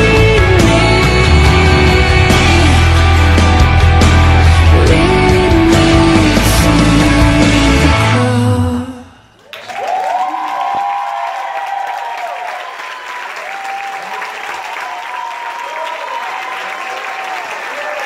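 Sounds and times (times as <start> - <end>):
recorded song: 0.0 - 9.5
audience applauding: 9.4 - 18.0
whoops and cheers: 9.4 - 18.0.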